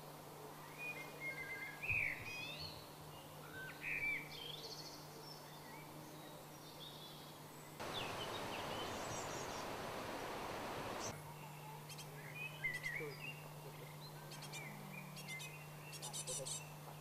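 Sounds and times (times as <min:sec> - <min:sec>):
outdoor background hiss: 0:00.0 - 0:17.0
songbirds singing and calling: 0:00.5 - 0:17.0
faint low hum: 0:04.3 - 0:17.0.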